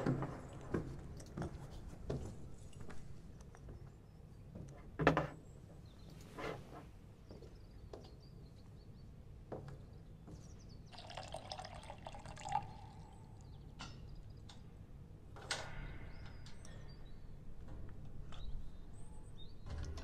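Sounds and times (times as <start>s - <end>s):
liquid pouring and dripping: 10.9s - 13.6s.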